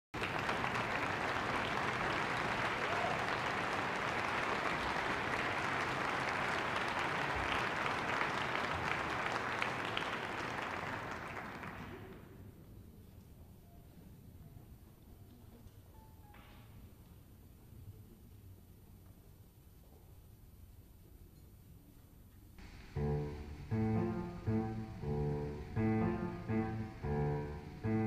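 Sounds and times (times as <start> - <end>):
audience applauding: 0.2 - 12.4.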